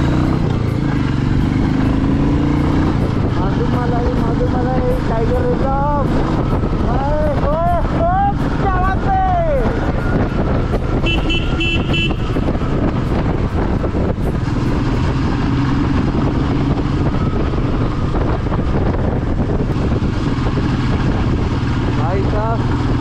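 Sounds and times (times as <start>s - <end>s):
motorcycle engine hum: 0.0s - 23.0s
wind and road noise: 0.0s - 23.0s
horn short beeps: 11.0s - 12.4s.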